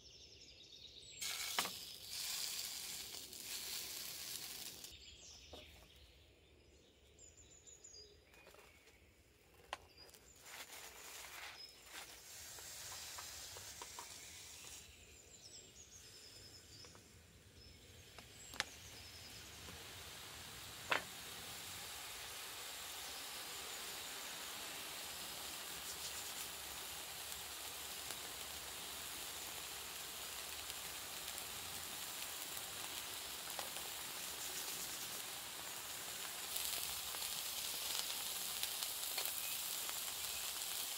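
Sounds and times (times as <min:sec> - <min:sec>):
burger patty sizzling in a pan: 0:01.2 - 0:05.0, 0:10.3 - 0:40.9
faint bird chirps: 0:12.9 - 0:20.3.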